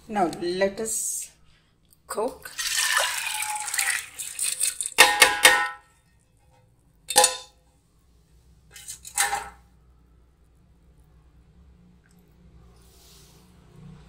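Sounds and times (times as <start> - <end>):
steel bowl clanking on metal rim: 7.1 - 7.5.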